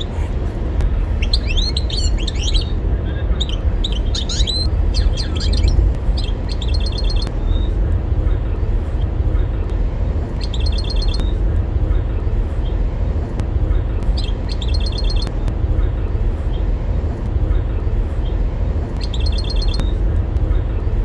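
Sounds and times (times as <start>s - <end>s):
steady low rumble: 0.0s - 21.0s
bird twittering song: 1.1s - 7.8s, 10.4s - 11.4s, 14.0s - 15.5s, 19.0s - 20.0s.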